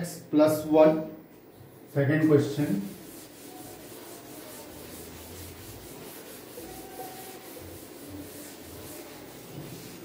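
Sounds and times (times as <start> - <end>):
duster rubbing chalkboard: 1.8 - 10.0.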